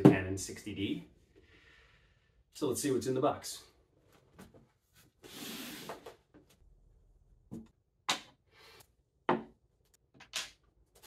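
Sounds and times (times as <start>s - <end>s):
knocks on wooden tabletop: 9.3s - 9.5s.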